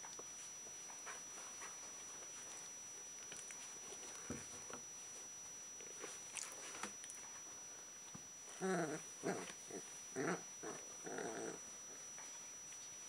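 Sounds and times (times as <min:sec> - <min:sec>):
puppy play-growls: 0:08.6 - 0:11.6.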